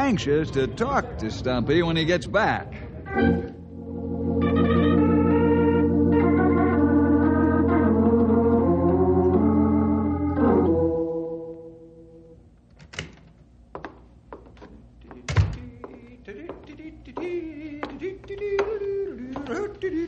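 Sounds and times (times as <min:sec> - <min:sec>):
organ playing held chords: 0:03.1 - 0:12.5.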